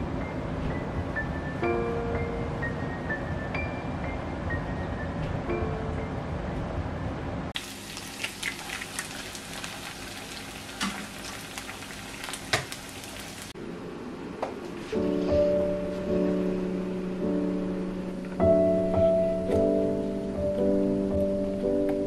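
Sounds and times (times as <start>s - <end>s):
food sizzling in frying pan: 7.6s - 13.5s.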